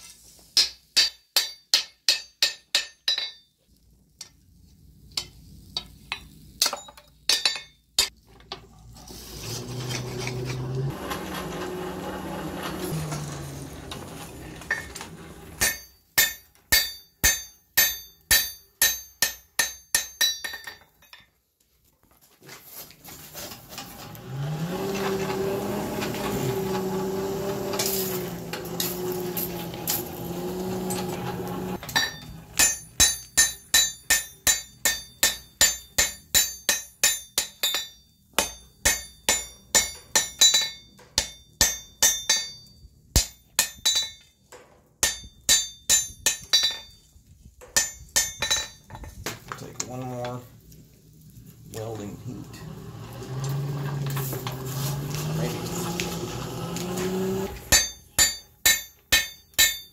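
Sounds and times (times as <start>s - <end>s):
forge blower humming: 9.2s - 15.6s, 23.8s - 32.6s, 51.7s - 57.8s
hammer ringing on anvil: 15.6s - 20.8s, 31.9s - 44.3s, 57.7s - 59.9s.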